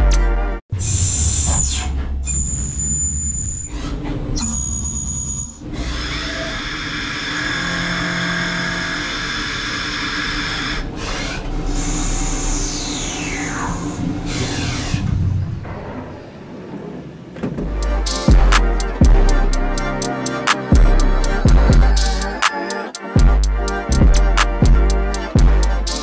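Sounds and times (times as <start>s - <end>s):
metal cutting noise: 0.0s - 16.1s, 17.7s - 26.0s
lathe machine whine: 4.4s - 15.0s.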